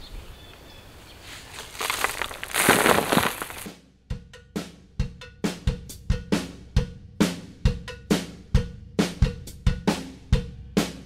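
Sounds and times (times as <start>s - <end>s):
drum-driven music: 2.5s - 11.0s.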